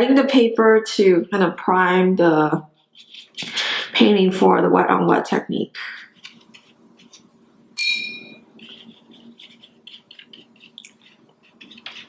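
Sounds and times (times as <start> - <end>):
paintbrush clinking glass jar: 7.8 - 8.9
brush swishing in water: 8.5 - 12.0.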